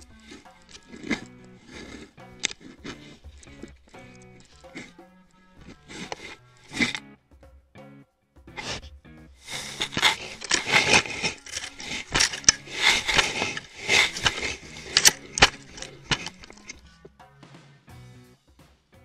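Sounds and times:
fur rustling and scraping on camera: 0.0 - 4.9, 8.6 - 16.9
faint background music: 0.0 - 19.0.

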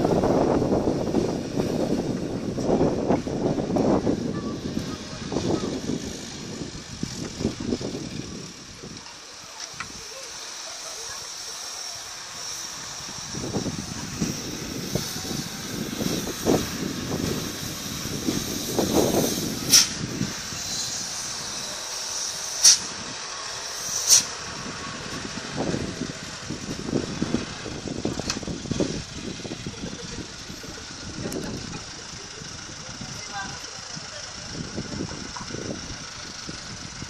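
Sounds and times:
dump truck engine running: 0.0 - 37.0
short sharp hisses: 19.2 - 23.0, 23.7 - 24.4.

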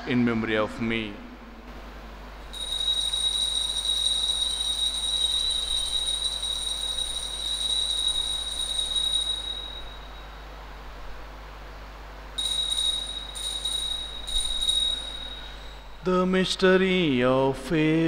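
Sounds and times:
altar bell ringing: 2.5 - 10.5, 12.4 - 16.1.

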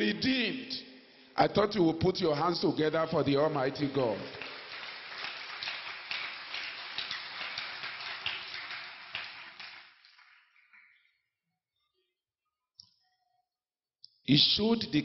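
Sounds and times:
congregation applauding: 3.2 - 11.0.

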